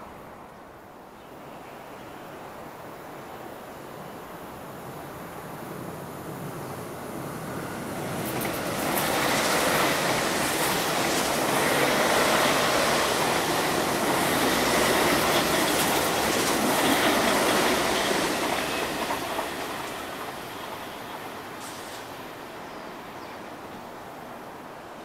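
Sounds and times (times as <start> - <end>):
train wheels rumbling on rails: 6.4 - 22.7.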